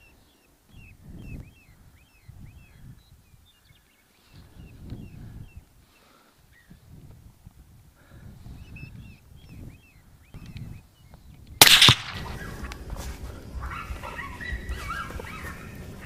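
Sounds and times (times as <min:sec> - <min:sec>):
rifle shot: 0:11.6 - 0:12.8
coyote yelping: 0:13.6 - 0:15.9.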